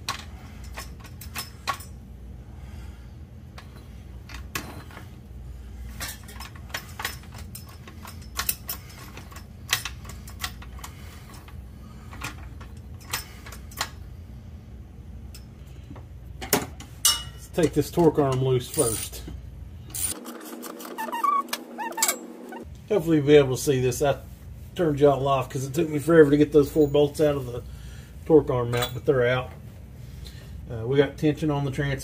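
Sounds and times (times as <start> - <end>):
metal tools clinking: 0.0 - 2.0, 3.6 - 5.2, 5.9 - 14.0, 17.0 - 19.3, 19.9 - 22.6, 26.6 - 27.4, 28.7 - 29.1
steady low hum: 0.0 - 32.0.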